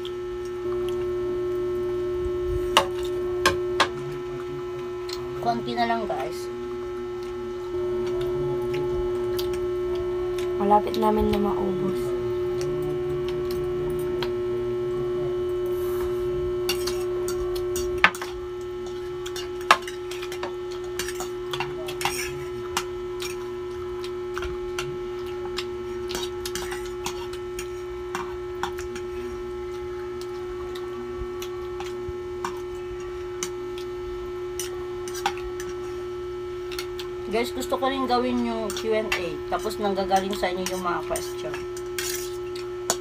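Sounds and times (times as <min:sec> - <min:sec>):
electrical hum: 0:00.0 - 0:43.0
cutlery clinking against plates: 0:19.2 - 0:23.4.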